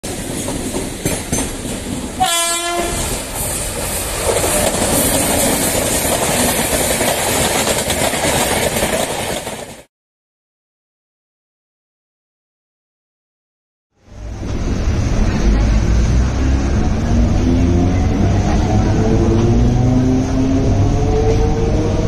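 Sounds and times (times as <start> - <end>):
train wheels on rails: 0.0 - 9.9, 14.0 - 22.0
train horn blast: 2.2 - 3.2.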